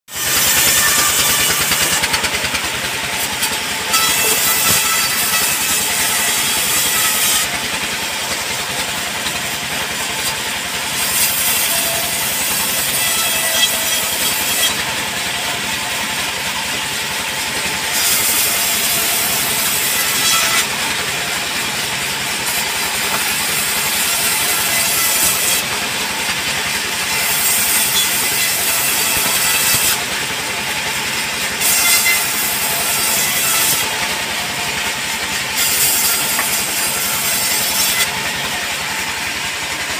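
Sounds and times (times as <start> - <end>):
band saw blade cutting wood: 0.1 - 39.9
band saw running: 0.1 - 39.9.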